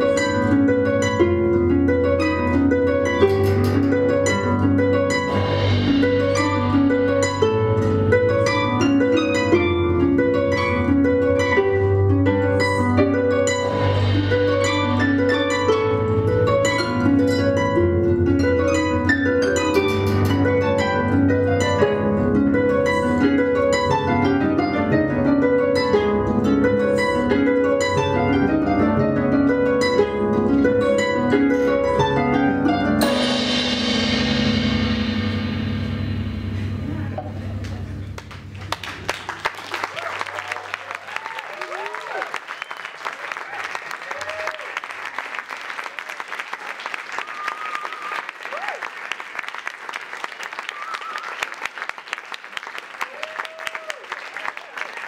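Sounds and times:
harps playing duet: 0:00.0 - 0:39.2.

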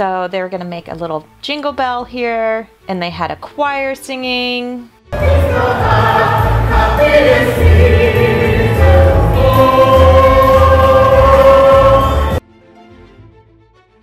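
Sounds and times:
low rhythmic bass: 0:05.2 - 0:12.4
women's choir singing: 0:05.2 - 0:12.4.

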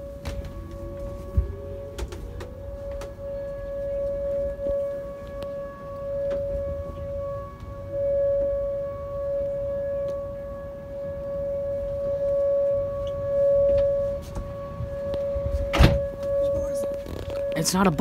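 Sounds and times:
warning siren steady tone: 0:00.0 - 0:18.0.

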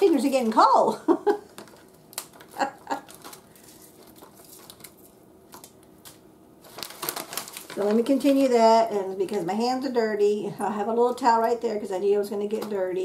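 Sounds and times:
plastic packaging crinkling: 0:01.5 - 0:09.6.

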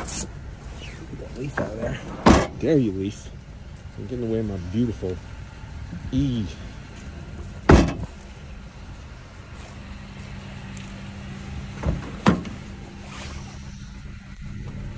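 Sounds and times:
car hatch slamming shut: 0:02.1 - 0:02.6, 0:07.6 - 0:08.1, 0:11.8 - 0:12.6
car door handle clunks: 0:07.7 - 0:08.1.

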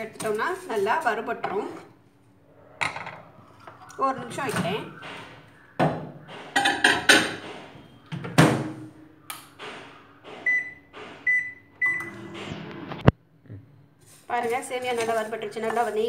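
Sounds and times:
microwave oven humming: 0:04.8 - 0:14.0
keypad beeps: 0:10.4 - 0:12.2.

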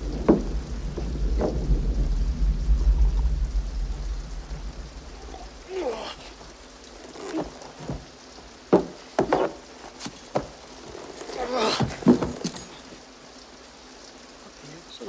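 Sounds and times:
sharp knocks: 0:08.7 - 0:10.6
man groaning and breathing hard: 0:11.4 - 0:12.0
metallic jingling and clinks: 0:12.0 - 0:13.0.

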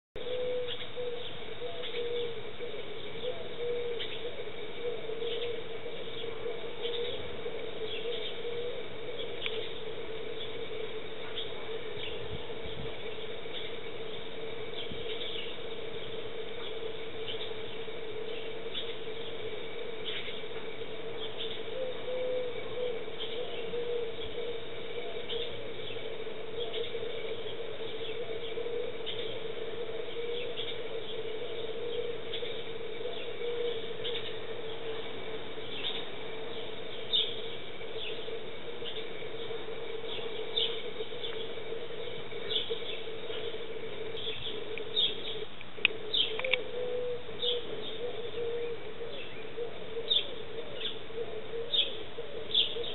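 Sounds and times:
low hum: 0:00.2 - 0:52.9
sparrows chirping: 0:00.2 - 0:52.9.

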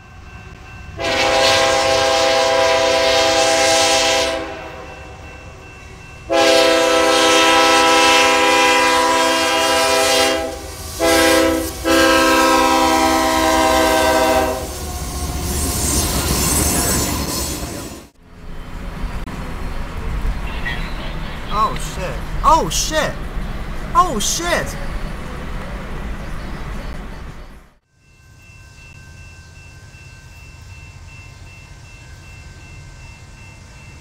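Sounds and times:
locomotive air horn blasts: 0:01.0 - 0:05.0, 0:06.3 - 0:14.8.

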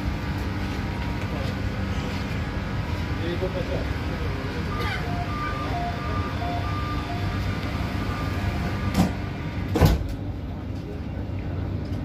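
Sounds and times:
subway train rumbling: 0:00.0 - 0:12.0
high two-pitch tone: 0:04.7 - 0:08.5.

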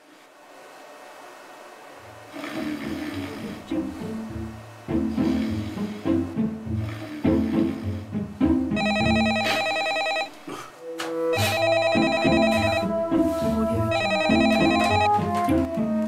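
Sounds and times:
background music: 0:02.0 - 0:16.0
telephone ringing electronic trill: 0:08.8 - 0:10.4, 0:11.3 - 0:13.0, 0:13.9 - 0:15.2.

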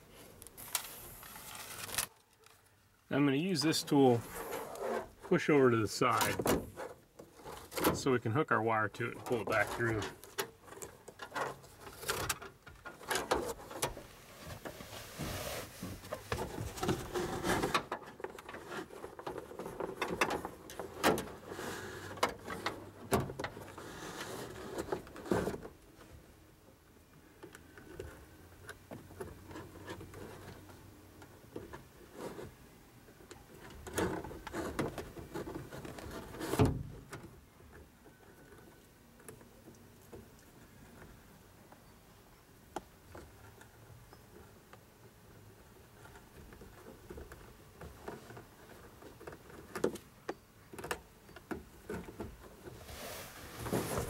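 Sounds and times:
fish tape rustling and scraping: 0:00.1 - 0:02.8, 0:09.3 - 0:23.0, 0:23.6 - 0:25.6, 0:51.9 - 0:54.0.

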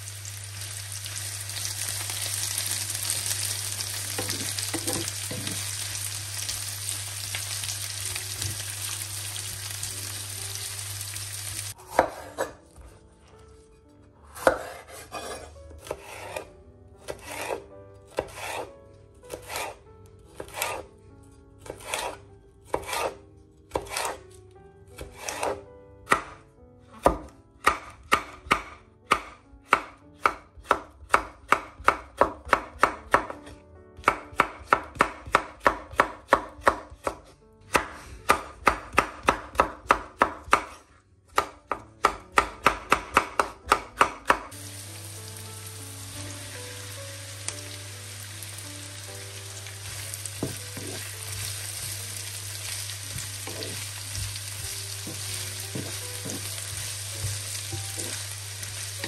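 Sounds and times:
vegetables sizzling in a pan: 0:00.0 - 0:11.8, 0:44.5 - 0:59.0
knife chopping on cutting board: 0:04.2 - 0:05.6, 0:11.8 - 0:13.0, 0:14.3 - 0:18.7, 0:19.3 - 0:19.8, 0:20.4 - 0:20.9, 0:21.6 - 0:24.2, 0:25.0 - 0:26.4, 0:27.0 - 0:44.5, 0:50.4 - 0:52.0, 0:53.1 - 0:58.2
wooden spatula knocking: 0:04.2 - 0:05.6, 0:50.4 - 0:51.1, 0:55.0 - 0:58.2.

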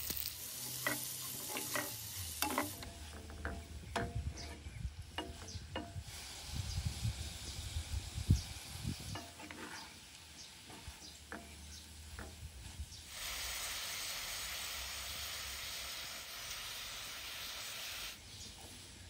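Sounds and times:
beans sizzling in a frying pan: 0:00.0 - 0:03.9, 0:05.0 - 0:19.0.

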